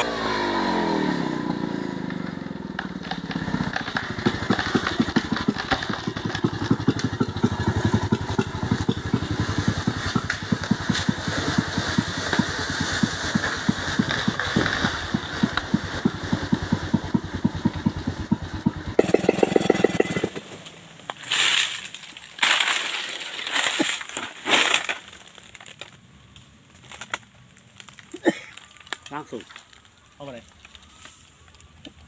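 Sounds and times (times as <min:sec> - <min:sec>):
chainsaw idling: 0:03.2 - 0:25.9
dry brush crackling and rustling: 0:20.4 - 0:32.0.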